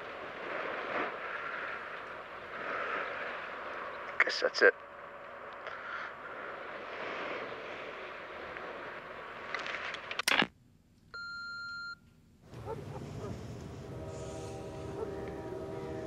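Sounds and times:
low background rumble: 0.0s - 16.0s
answering machine beep: 11.2s - 12.0s.

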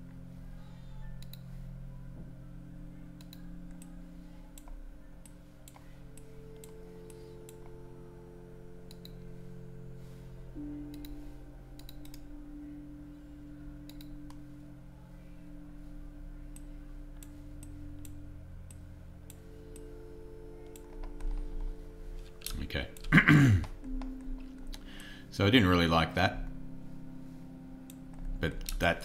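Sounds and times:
long held tones: 0.0s - 23.0s
low steady hum: 0.0s - 29.0s
computer mouse clicking: 1.2s - 1.4s, 3.2s - 4.0s, 8.9s - 9.2s, 10.9s - 11.2s, 11.8s - 12.2s, 13.8s - 14.4s.

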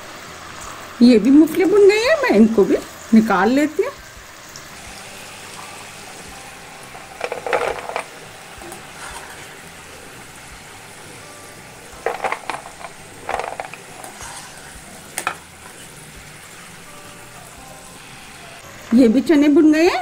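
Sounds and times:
food deep-frying in oil: 0.0s - 20.0s
wire skimmer scraping pan: 6.9s - 9.6s, 12.0s - 16.0s.

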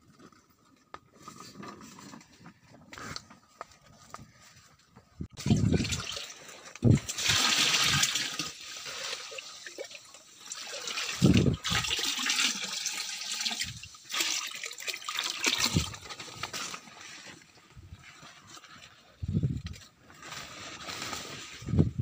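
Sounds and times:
water pouring and splashing: 5.4s - 19.0s.

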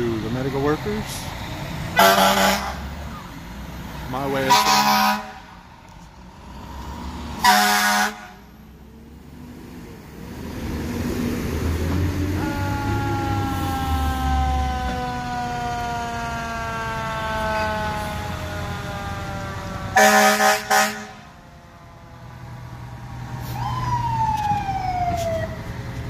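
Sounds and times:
heavy vehicles rumbling past: 0.0s - 26.0s
fire truck air horn blast: 1.9s - 2.9s, 4.4s - 5.6s, 7.4s - 8.5s, 12.3s - 15.3s, 19.9s - 21.4s
siren wailing: 12.1s - 25.8s.

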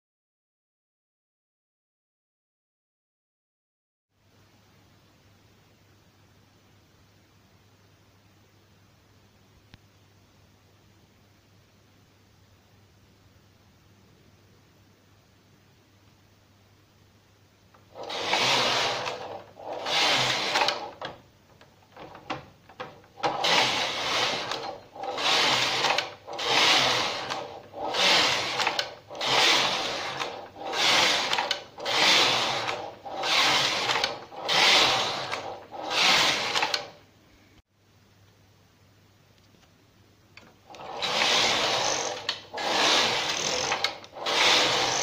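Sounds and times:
knitting machine carriage passing: 17.9s - 21.2s, 22.0s - 37.0s, 40.7s - 45.0s.

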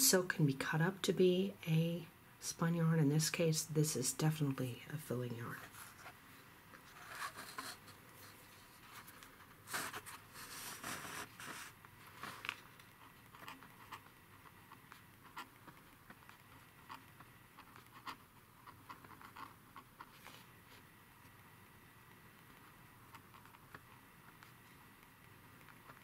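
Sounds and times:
pen scratching on paper: 6.9s - 7.8s, 9.7s - 11.8s, 13.0s - 20.4s.

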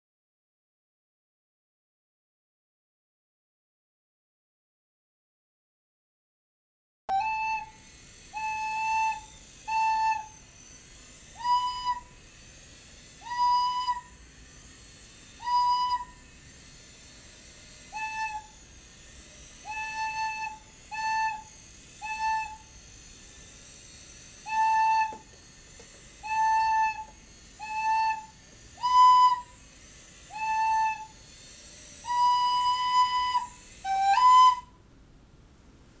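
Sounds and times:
steady hiss: 7.2s - 34.8s.

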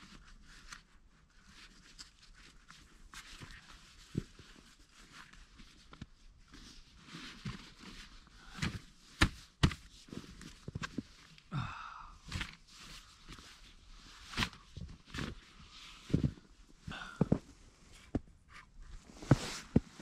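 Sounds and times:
rustling and shuffling in snow: 12.6s - 20.0s.

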